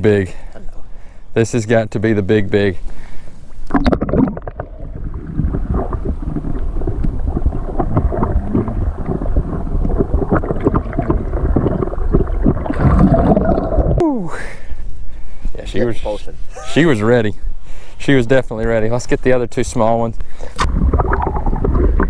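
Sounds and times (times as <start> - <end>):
muffled underwater sloshing: 3.6 - 14.0, 20.5 - 22.0.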